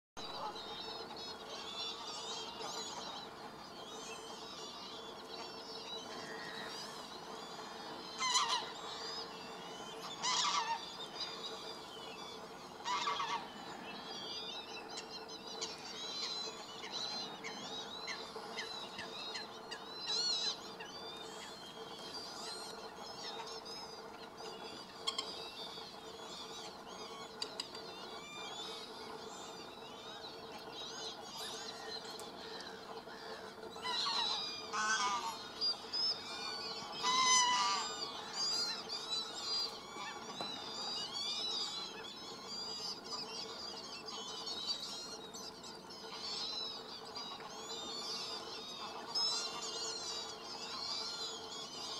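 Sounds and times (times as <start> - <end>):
small birds chirping: 0.2 - 51.9
geese honking: 8.2 - 8.8, 10.0 - 10.9, 12.8 - 13.5, 33.8 - 35.5, 36.8 - 37.9.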